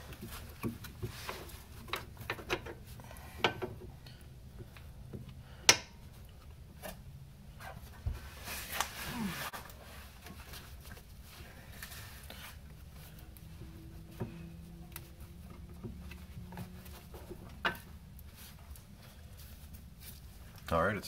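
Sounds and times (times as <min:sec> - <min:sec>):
low hum: 0:10.8 - 0:20.5.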